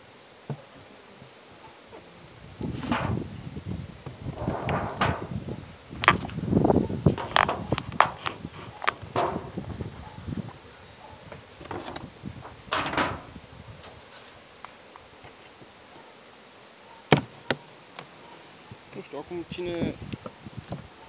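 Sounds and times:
metal roof knocking: 0:09.2 - 0:09.6
sharp knock of wooden cover: 0:09.2 - 0:09.6.

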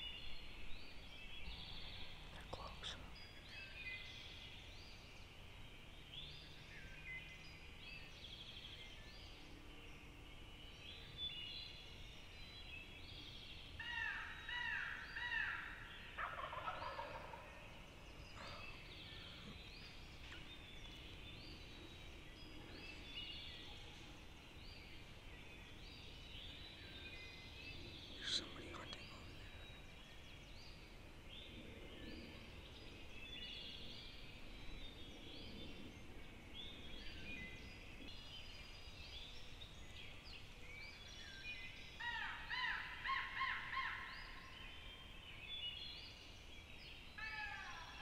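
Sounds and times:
songbirds chirping: 0:00.0 - 0:48.0
distant turkeys gobbling: 0:16.2 - 0:17.5.

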